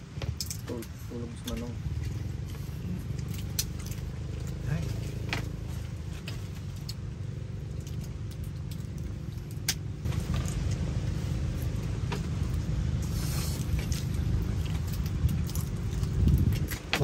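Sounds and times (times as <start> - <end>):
low rumble with faint hum: 0.0 - 17.0
crab shells cracking: 3.1 - 4.6, 6.6 - 11.0, 13.6 - 17.0.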